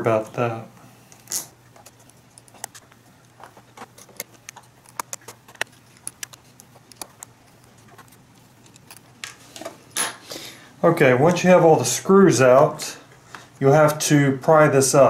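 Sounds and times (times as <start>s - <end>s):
loose screws clicking: 1.2s - 9.4s.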